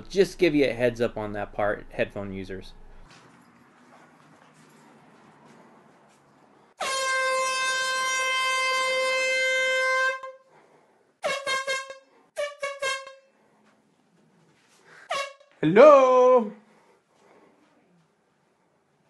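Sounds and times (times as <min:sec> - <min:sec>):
air horn blasts: 0:06.8 - 0:13.6, 0:15.0 - 0:16.1.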